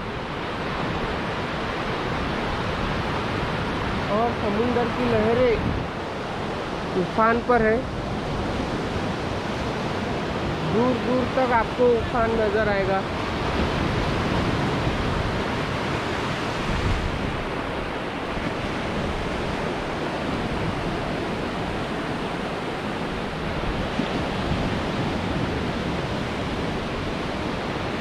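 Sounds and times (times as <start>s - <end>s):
sea surf breaking on beach: 0.0s - 28.0s.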